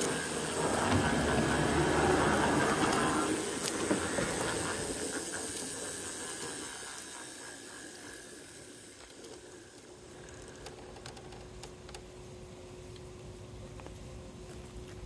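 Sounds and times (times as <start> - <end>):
model train running on track: 0.0 - 12.0
faint steady hum: 0.0 - 15.0
small clicks: 9.0 - 12.1.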